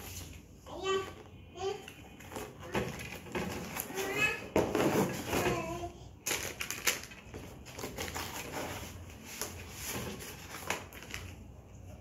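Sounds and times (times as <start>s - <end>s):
plastic toy pieces clattering: 6.2s - 8.5s
rummaging in cardboard box: 6.3s - 11.4s.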